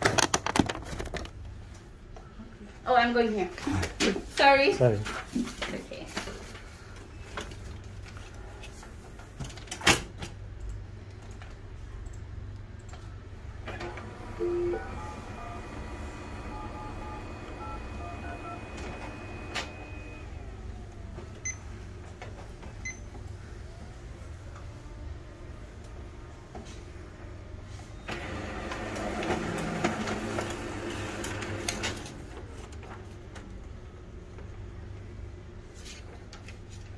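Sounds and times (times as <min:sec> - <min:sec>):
printer low hum: 0:13.1 - 0:33.3
stepped printer motor tones: 0:13.7 - 0:20.5.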